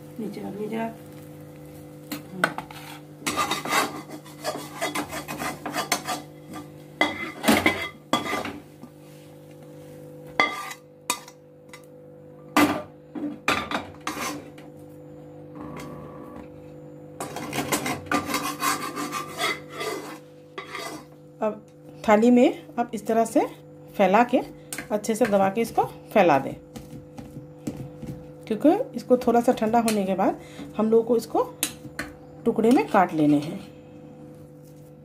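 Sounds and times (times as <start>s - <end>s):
steady low hum: 0.0s - 35.0s
metal spatula scraping: 2.5s - 8.6s, 10.4s - 11.4s, 14.0s - 14.5s, 17.2s - 21.2s.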